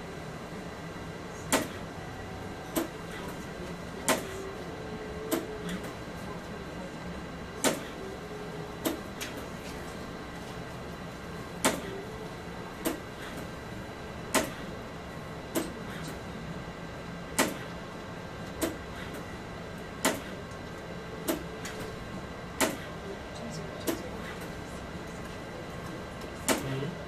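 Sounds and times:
steady machine hum: 0:00.0 - 0:27.0.

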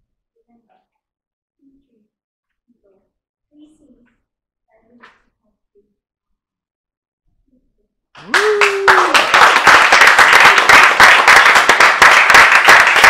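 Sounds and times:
person whooping: 0:08.2 - 0:09.6
audience clapping: 0:08.2 - 0:13.0.

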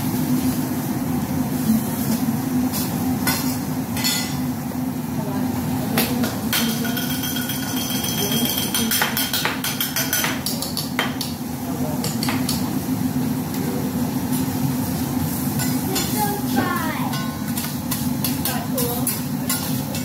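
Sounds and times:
spatula and knife on griddle: 0:01.6 - 0:04.4, 0:06.5 - 0:11.4, 0:13.5 - 0:20.0.

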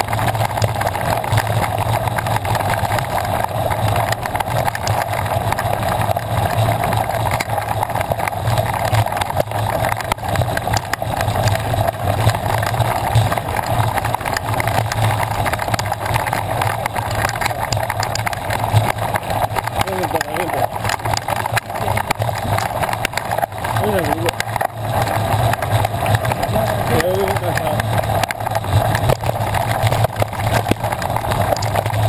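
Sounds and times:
bicycle tyres rolling on gravel: 0:00.0 - 0:32.0
bike clicks and rattles: 0:00.0 - 0:32.0.

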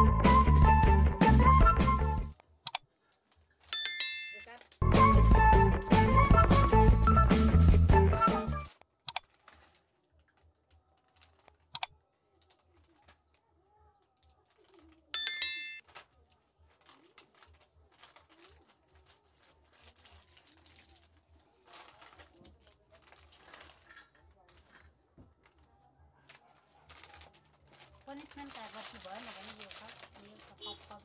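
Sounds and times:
music: 0:00.0 - 0:02.4, 0:04.8 - 0:08.8
scissors cutting plastic packets: 0:09.1 - 0:15.1, 0:15.8 - 0:25.6, 0:26.2 - 0:31.0.

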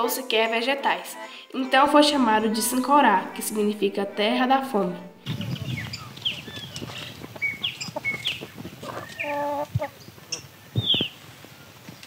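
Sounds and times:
small birds chirping: 0:05.2 - 0:12.0
chicken calling loudly: 0:06.0 - 0:10.0.

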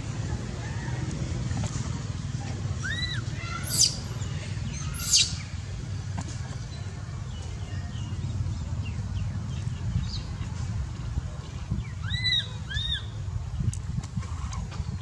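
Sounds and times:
baby monkey squealing: 0:02.8 - 0:04.1, 0:04.8 - 0:05.4, 0:12.0 - 0:13.1.

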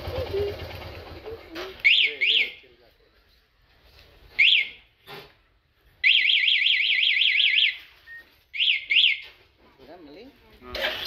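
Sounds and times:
alarm chirp: 0:06.0 - 0:09.3.

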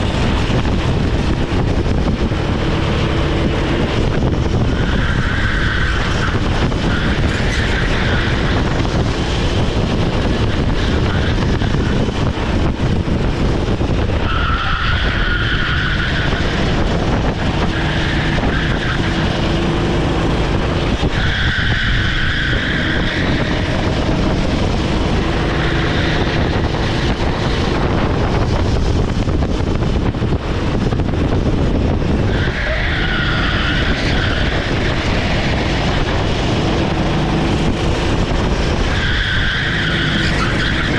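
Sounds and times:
kart engine running hard: 0:00.0 - 0:40.9
tyres squealing: 0:14.2 - 0:16.9, 0:32.3 - 0:36.0, 0:38.6 - 0:40.9.

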